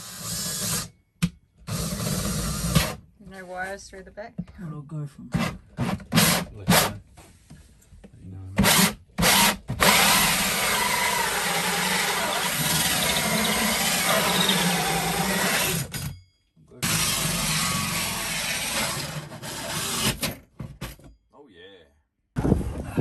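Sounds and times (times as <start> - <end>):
cordless drill cutting wood: 0.0 - 0.9, 1.7 - 3.0, 8.6 - 16.0, 16.8 - 20.3.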